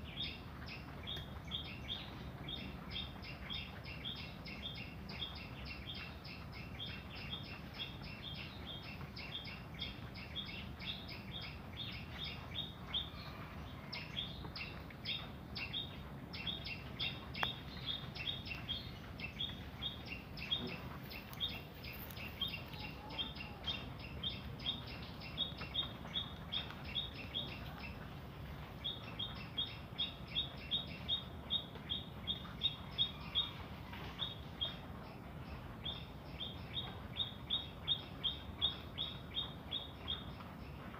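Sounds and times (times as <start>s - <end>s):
small bird chirping: 0.0s - 40.8s.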